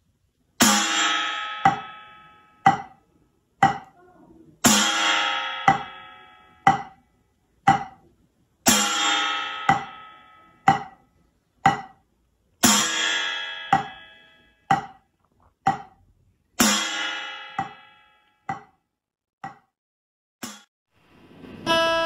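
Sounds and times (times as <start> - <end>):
drumstick on ringing steel plate: 0.6 - 3.0, 3.6 - 4.0, 4.6 - 7.0, 7.7 - 8.1, 8.7 - 12.0, 12.6 - 15.0, 15.7 - 16.0, 16.6 - 18.7
drumstick taps on rubber pad: 7.7 - 8.0.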